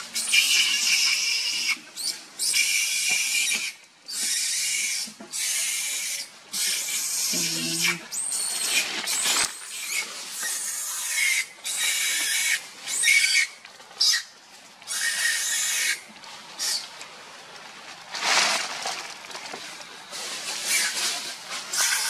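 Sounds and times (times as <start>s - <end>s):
baby monkey screaming: 0.2s - 14.3s, 14.9s - 16.0s, 21.7s - 22.0s.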